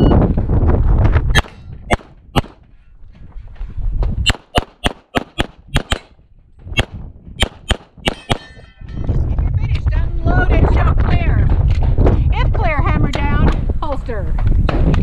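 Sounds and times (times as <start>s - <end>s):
pistol shots: 1.4s - 2.6s, 4.3s - 6.2s, 6.8s - 8.6s.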